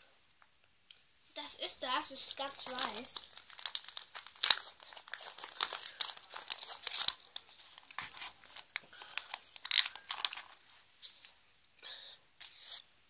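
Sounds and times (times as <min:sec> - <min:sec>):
wrapper crinkling: 0:02.0 - 0:11.4.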